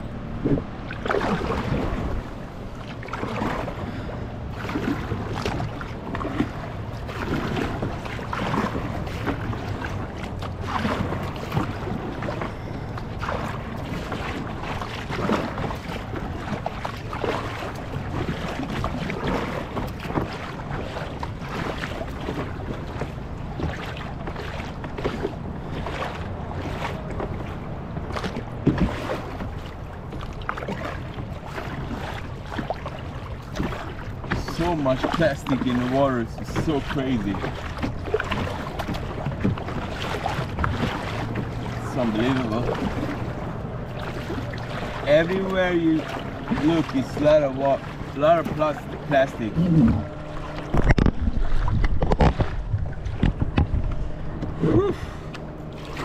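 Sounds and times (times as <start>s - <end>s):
wind on microphone: 0.0s - 2.6s, 49.4s - 55.0s
kayak paddle splashes: 0.0s - 56.0s.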